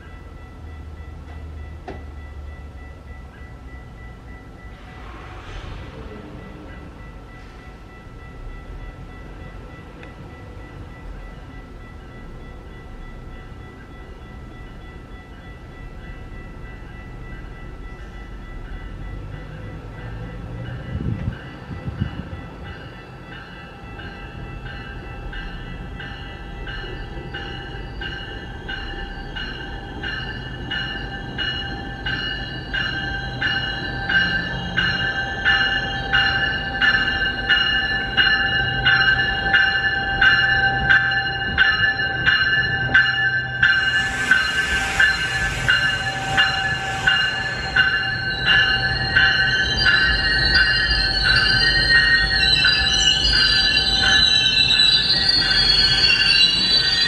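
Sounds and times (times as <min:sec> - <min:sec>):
low rumble of train: 0:00.0 - 0:57.0
train bell ringing: 0:00.0 - 0:57.0
hissing air: 0:43.8 - 0:48.6.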